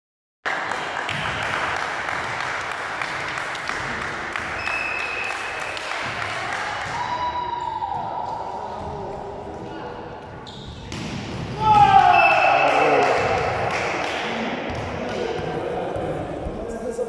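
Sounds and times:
sharp claps or smacks: 0.5 - 7.0, 12.6 - 15.4
crowd and player noise: 0.5 - 17.0.

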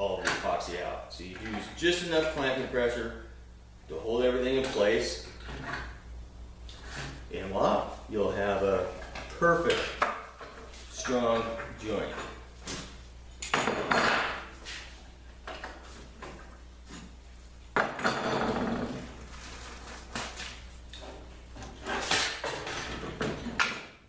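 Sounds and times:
boards rustling and rubbing: 18.5 - 22.4.

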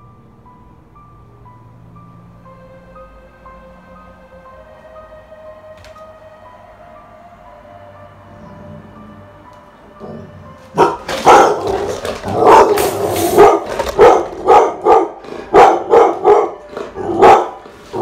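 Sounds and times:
dog barking sharply: 10.8 - 11.7, 12.4 - 16.6, 17.2 - 17.6.

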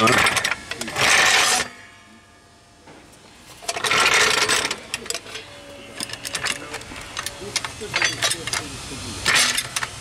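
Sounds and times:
floor jack scraping: 0.0 - 1.8, 3.5 - 7.3.

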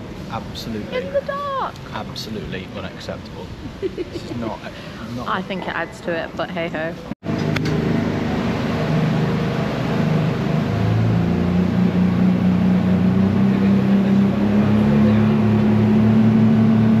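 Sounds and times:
engine running at low pitch: 7.0 - 17.0.

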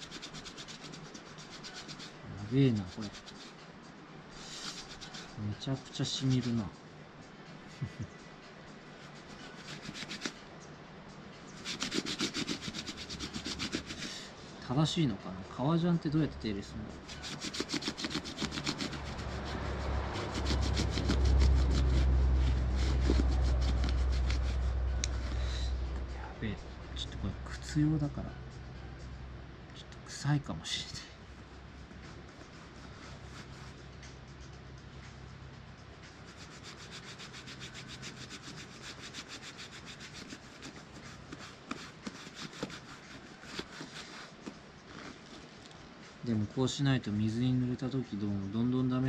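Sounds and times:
hand rubbing leather: 0.0 - 3.6, 4.4 - 6.7, 9.0 - 10.4, 11.6 - 14.3, 17.0 - 25.8, 32.0 - 34.6, 36.1 - 45.5
low rumble: 19.2 - 30.1.

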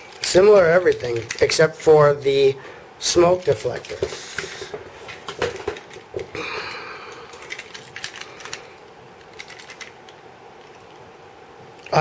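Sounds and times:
plastic toys clicking and tapping: 0.1 - 1.7, 3.3 - 10.1.

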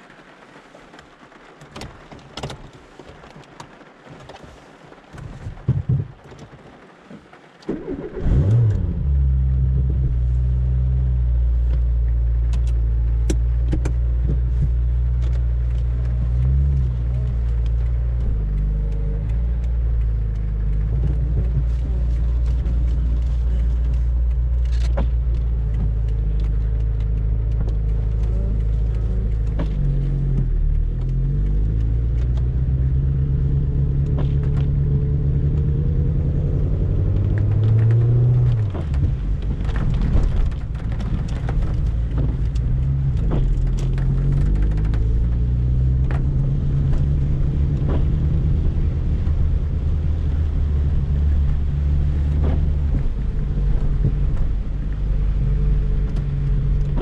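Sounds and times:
car engine running from inside cabin: 7.7 - 57.0
sharp clicks: 11.7 - 35.7, 37.1 - 49.6.

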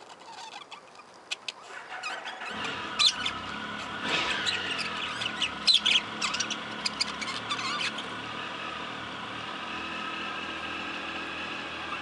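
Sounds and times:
budgerigars chirping and squawking: 1.6 - 8.2
budgerigars warbling: 1.6 - 8.2.

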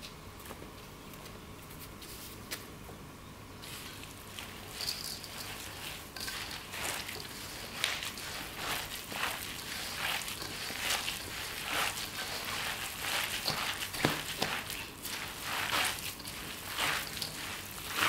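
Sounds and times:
hand squelching wet filling: 3.6 - 18.0.

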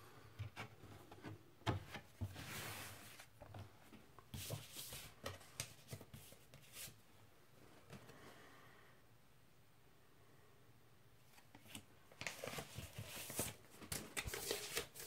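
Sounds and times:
paper and cardboard rustling: 11.4 - 15.0.

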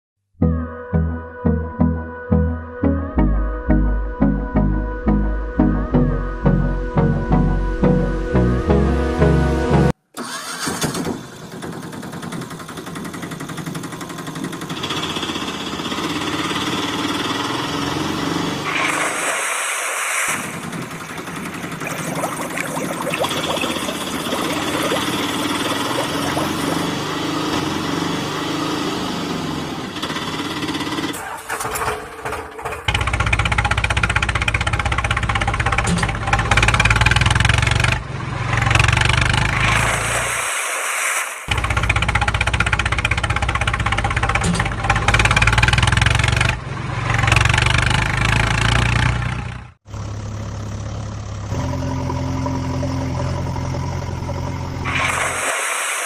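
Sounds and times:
engine idling: 10.2 - 16.8, 20.5 - 22.4, 41.5 - 46.7
small engine rattling chug: 10.2 - 17.6, 30.0 - 38.0, 41.5 - 54.5.

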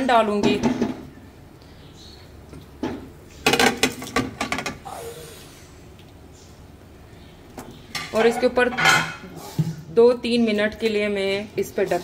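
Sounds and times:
kitchenware clattering against pan: 8.0 - 9.3.

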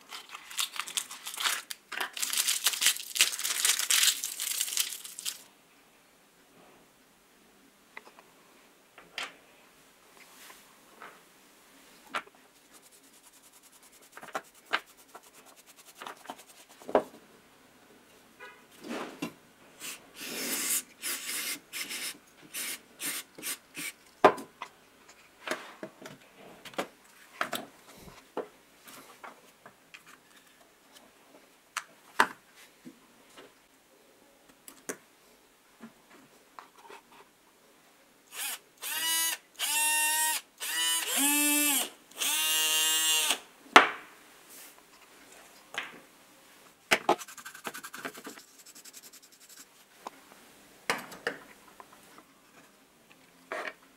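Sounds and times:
brush scrubbing plastic: 12.5 - 16.9, 47.1 - 49.9
small motor whirring: 38.3 - 43.4.

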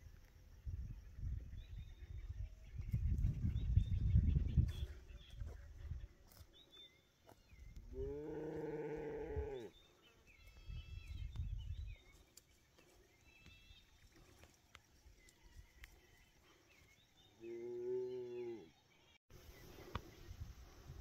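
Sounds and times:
birds chirping: 1.1 - 20.4.

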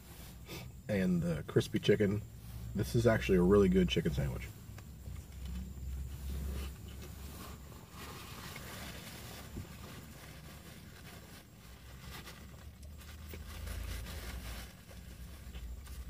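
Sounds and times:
vehicle rumble inside car: 0.0 - 16.0.

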